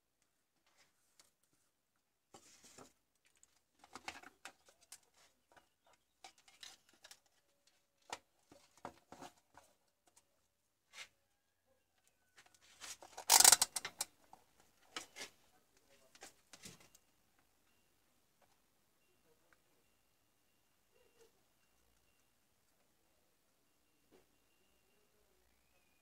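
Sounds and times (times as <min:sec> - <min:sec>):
scraping rustle: 0:12.4 - 0:13.6.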